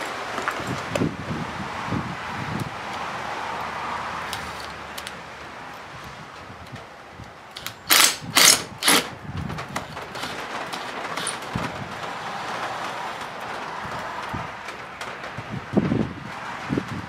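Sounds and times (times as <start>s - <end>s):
cordless drill bursts: 7.6s - 9.1s.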